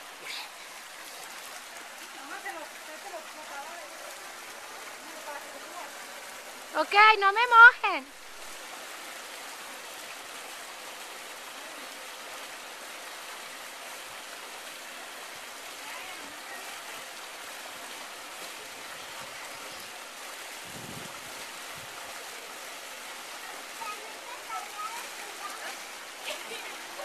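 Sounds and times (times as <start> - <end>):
water running down a slide: 0.0 - 27.0.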